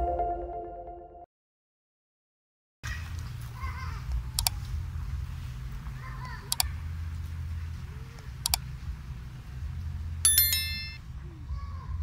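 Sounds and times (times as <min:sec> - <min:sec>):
mouse double clicks: 0:08.4 - 0:08.6.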